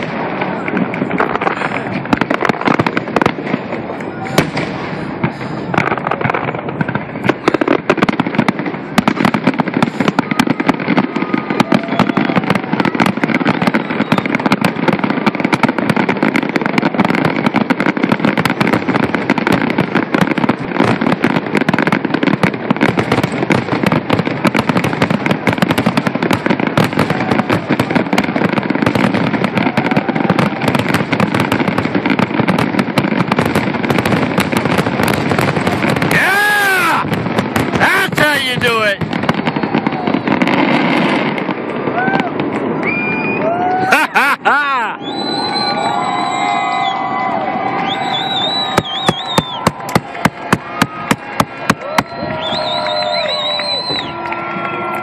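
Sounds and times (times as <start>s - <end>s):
fireworks bursting and crackling: 0.0s - 55.0s.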